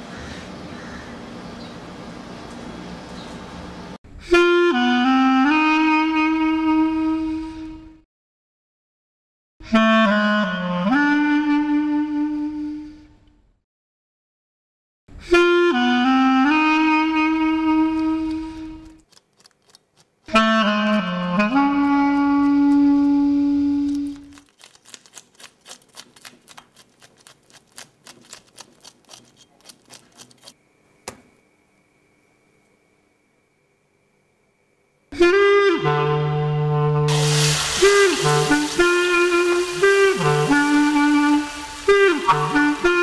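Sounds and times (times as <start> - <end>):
saxophone music: 4.2 - 8.0, 9.6 - 13.1, 15.2 - 19.0, 20.3 - 24.4, 35.2 - 43.0
faint steady high tone: 30.6 - 35.2.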